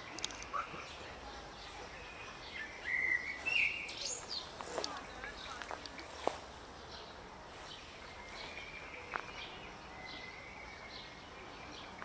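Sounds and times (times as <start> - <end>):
faint bird chirps: 0.0 - 4.5.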